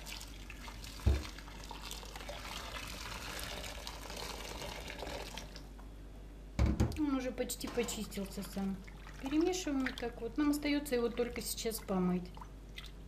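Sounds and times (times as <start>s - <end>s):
boiling water pouring into bowl: 0.0s - 5.7s, 8.3s - 10.5s
dull thump: 1.1s - 1.3s.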